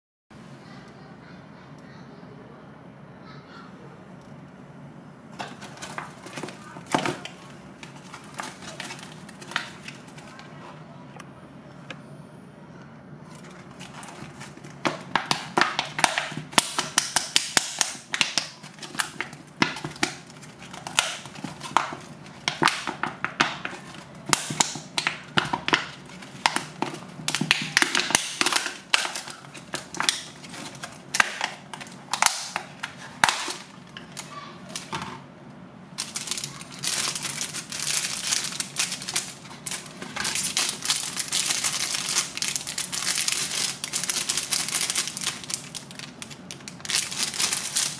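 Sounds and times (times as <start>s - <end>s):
plastic packaging crinkling: 5.3s - 10.6s, 13.2s - 35.1s, 36.0s - 47.9s.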